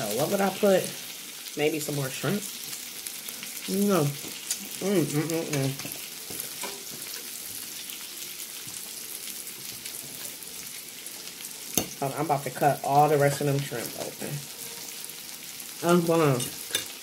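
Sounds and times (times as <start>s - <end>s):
food sizzling on a griddle: 0.0s - 17.0s
person humming: 4.8s - 5.8s.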